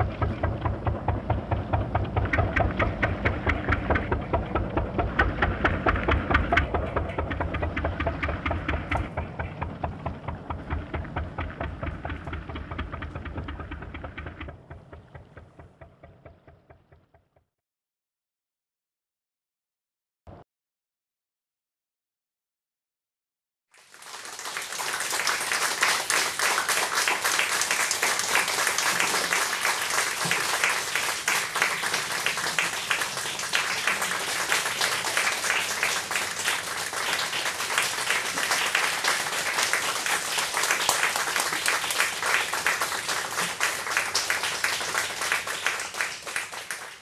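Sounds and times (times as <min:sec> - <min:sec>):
audience applauding: 0:23.8 - 0:47.0.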